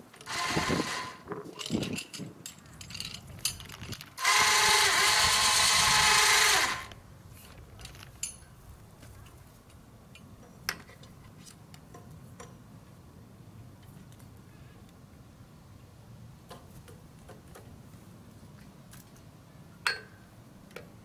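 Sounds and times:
electric winch motor running: 0:00.2 - 0:01.2, 0:04.2 - 0:07.0.

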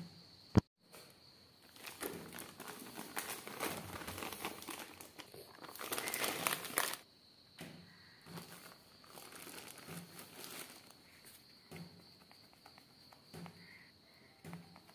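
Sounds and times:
plastic packet crinkling: 0:01.6 - 0:07.0, 0:08.4 - 0:11.0.

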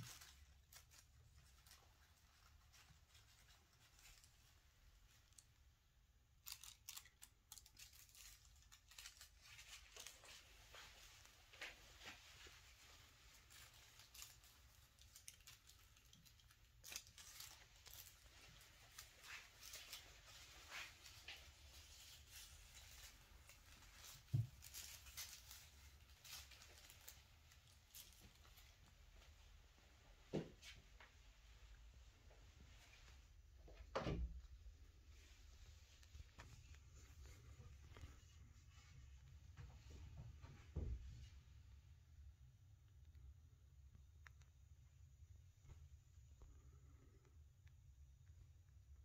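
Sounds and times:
foil streamers crinkling: 0:00.0 - 0:05.6, 0:06.3 - 0:29.6.

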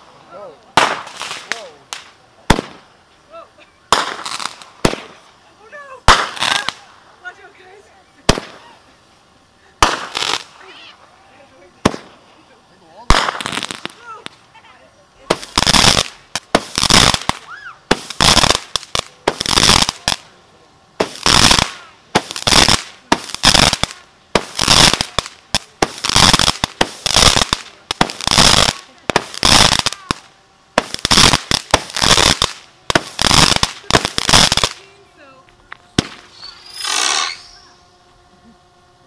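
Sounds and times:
fireworks shots bursting: 0:00.7 - 0:03.1, 0:03.9 - 0:07.4, 0:08.2 - 0:08.9, 0:09.7 - 0:10.8, 0:11.8 - 0:12.3, 0:12.9 - 0:14.4, 0:15.2 - 0:20.4, 0:21.0 - 0:35.0, 0:35.9 - 0:37.8.

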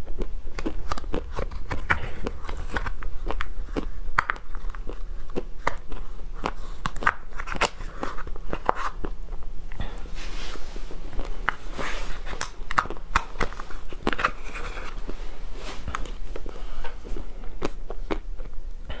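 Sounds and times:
crunching chocolate pieces: 0:00.0 - 0:10.0, 0:11.1 - 0:15.0.

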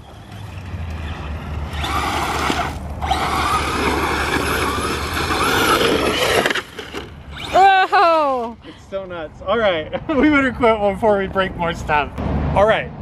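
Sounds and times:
toy car motor whining: 0:00.0 - 0:08.5
tyres churning dirt: 0:00.0 - 0:08.6.

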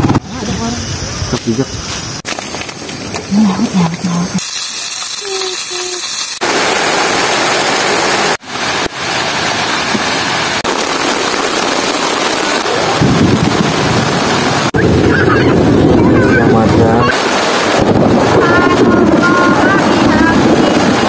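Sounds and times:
heavy rain pouring: 0:03.4 - 0:21.0
chicken sizzling in frying pan: 0:04.4 - 0:06.4.

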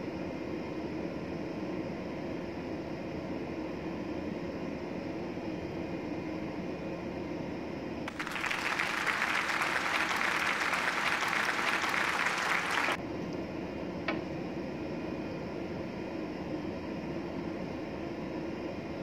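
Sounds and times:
applause: 0:08.1 - 0:13.0
ship machinery hum: 0:08.1 - 0:13.0.

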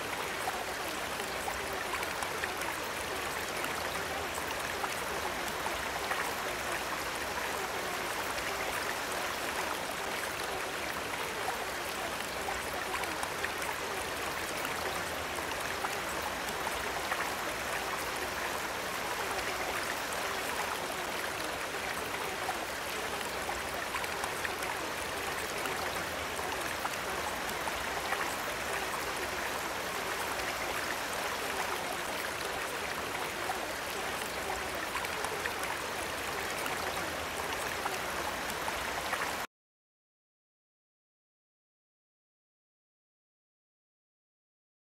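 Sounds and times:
running water: 0:00.0 - 0:39.5.

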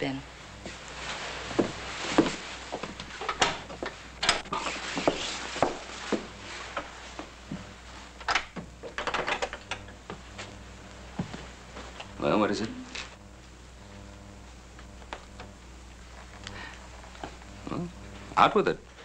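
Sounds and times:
footsteps: 0:00.6 - 0:08.1, 0:10.0 - 0:12.1.

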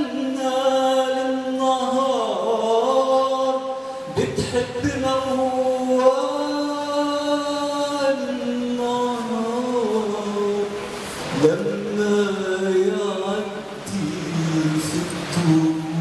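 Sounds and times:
man singing into a microphone: 0:00.0 - 0:16.0.

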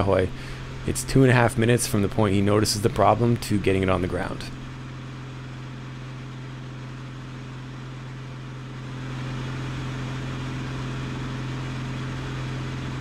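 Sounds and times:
light aircraft engine and propeller drone: 0:00.0 - 0:13.0
airflow hiss: 0:00.1 - 0:04.7.

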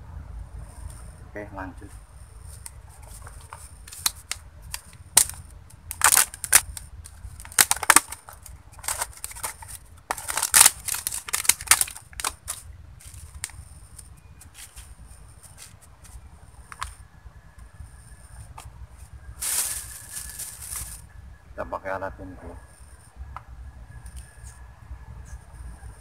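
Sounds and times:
plastic lid crinkling: 0:02.6 - 0:13.6, 0:19.4 - 0:21.0.

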